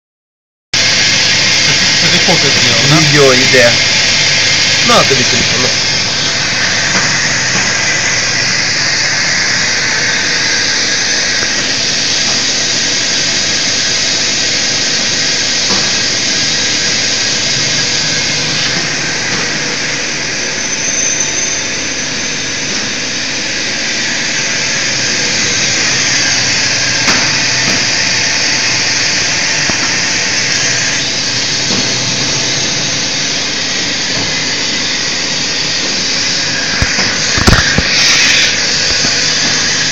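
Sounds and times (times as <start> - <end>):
machine din with hiss: 0.8 - 21.7, 24.7 - 39.9.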